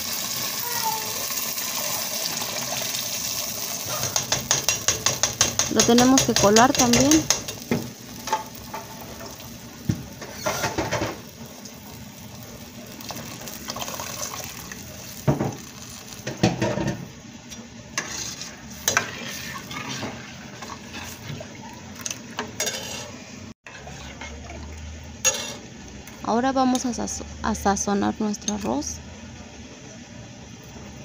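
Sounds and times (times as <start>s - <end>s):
steady sizzle: 0.0s - 31.0s
spoon scraping and knocking a pot: 3.9s - 8.8s, 22.6s - 23.1s, 25.2s - 25.6s.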